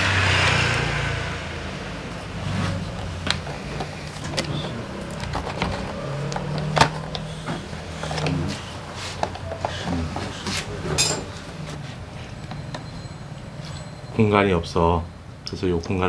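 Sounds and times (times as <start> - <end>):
tools clicking and knocking on metal: 3.3 - 8.4, 9.2 - 11.5.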